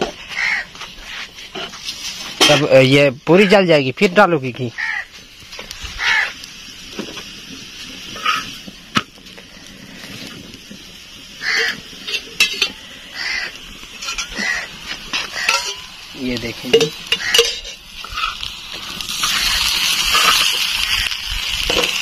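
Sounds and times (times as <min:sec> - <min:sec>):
flatbread sizzling on griddle: 0:00.0 - 0:22.0
short animal calls: 0:06.0 - 0:06.4
metal spoon clinking on bowl: 0:15.4 - 0:15.9, 0:16.7 - 0:17.8.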